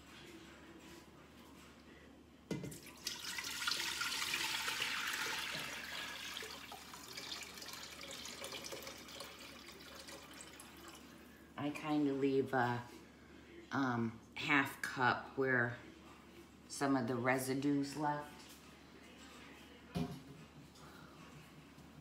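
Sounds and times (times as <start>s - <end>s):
liquid pouring into pot: 2.5s - 11.2s.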